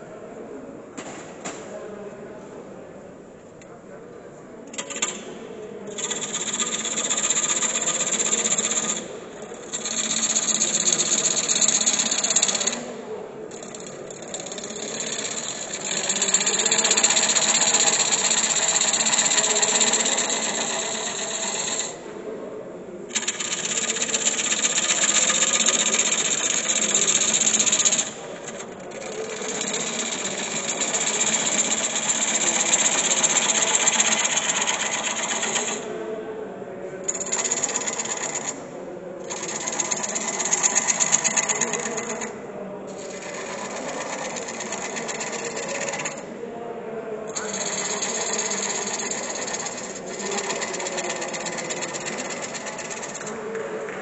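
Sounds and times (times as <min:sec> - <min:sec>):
lathe gouge rasping wood: 0:09.6 - 0:12.8, 0:13.5 - 0:22.0, 0:23.1 - 0:35.8, 0:37.1 - 0:38.6, 0:39.3 - 0:42.3, 0:43.0 - 0:46.2, 0:47.4 - 0:53.3.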